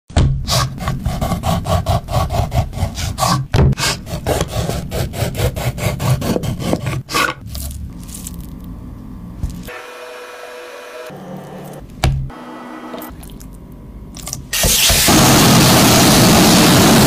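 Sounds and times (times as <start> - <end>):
low hum: 7.4 - 9.8.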